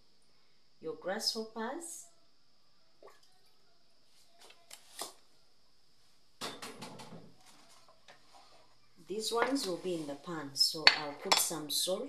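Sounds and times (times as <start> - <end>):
cookware clattering: 10.8 - 11.6.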